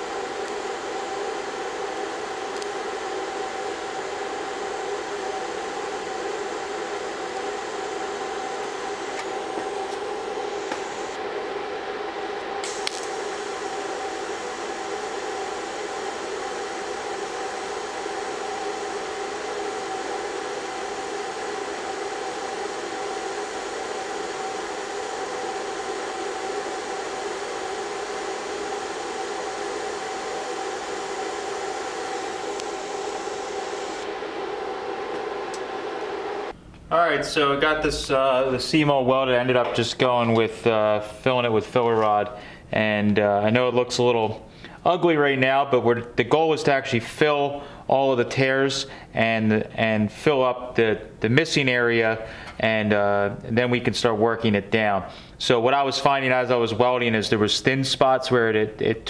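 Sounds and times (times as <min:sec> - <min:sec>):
welding arc hissing: 0:00.0 - 0:36.6.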